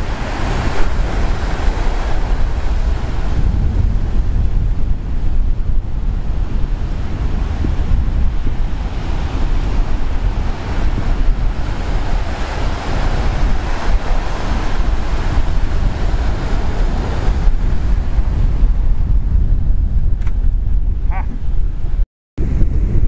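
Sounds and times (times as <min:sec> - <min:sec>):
surf breaking on shore: 0:00.0 - 0:19.5
wind buffeting the microphone: 0:00.0 - 0:23.0.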